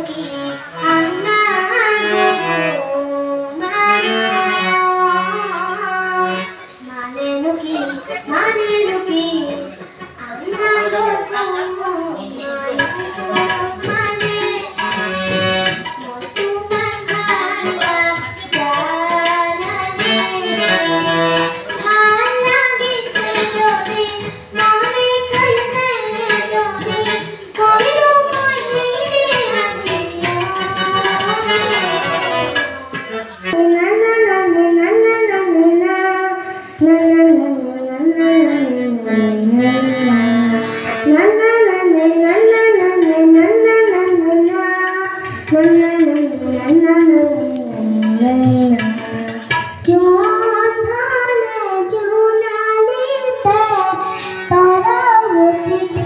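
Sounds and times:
harmonium: 0.0s - 33.9s, 36.9s - 56.0s
girl singing into a microphone: 0.0s - 56.0s
tabla: 0.0s - 56.0s.

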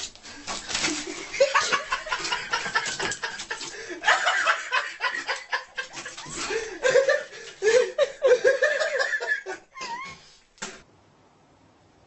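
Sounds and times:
people chuckling and laughing: 0.9s - 10.2s.

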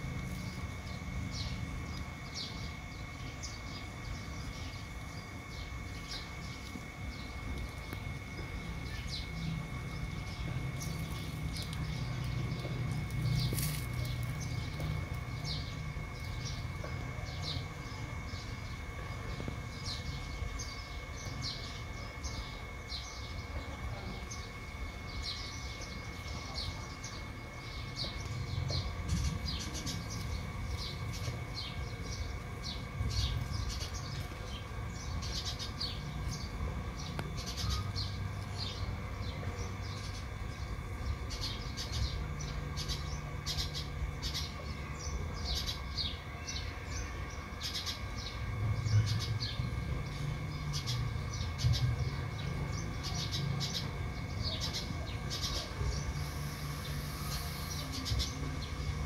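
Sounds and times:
small birds chirping: 0.0s - 59.0s
steady low hum: 0.0s - 59.0s.

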